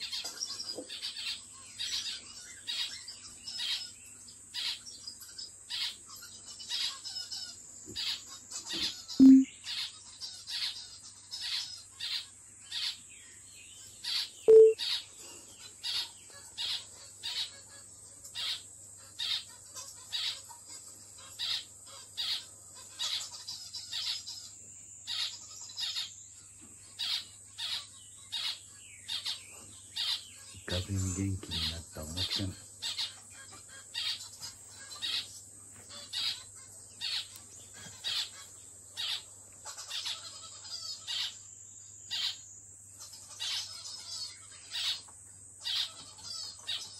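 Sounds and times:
finch giving high nasal calls: 8.7 - 9.5, 14.5 - 14.8.

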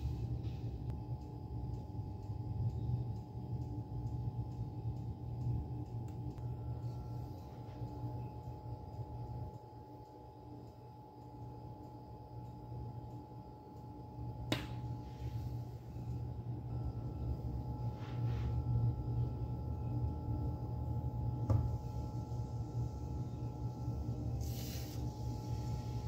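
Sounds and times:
induction cooktop humming: 0.0 - 26.0
faint high whine: 6.4 - 26.0.

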